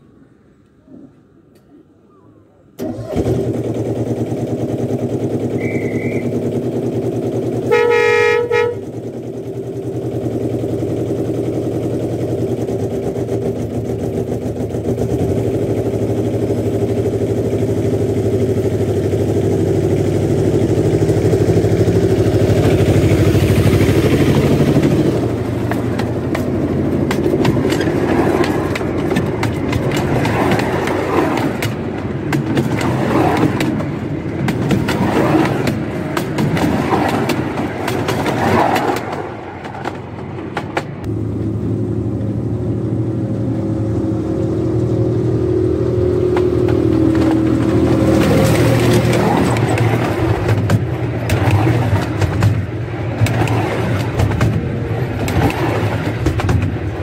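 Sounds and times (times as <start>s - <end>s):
miniature locomotive engine running: 2.8s - 41.1s, 44.9s - 57.0s
locomotive horn toot: 5.6s - 6.4s, 7.6s - 9.0s
rapid clicking and rattling: 9.0s - 41.1s, 46.3s - 57.0s.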